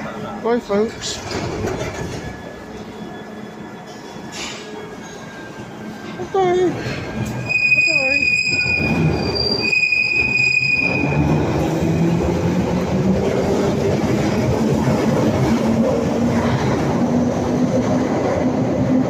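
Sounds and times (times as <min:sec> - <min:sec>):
wheel and track rumble: 0:00.1 - 0:02.8.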